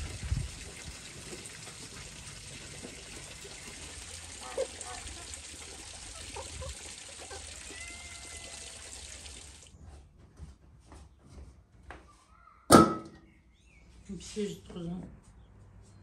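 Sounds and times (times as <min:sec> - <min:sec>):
running water: 0:00.0 - 0:09.7
loud metal clank with ring: 0:12.7 - 0:13.2.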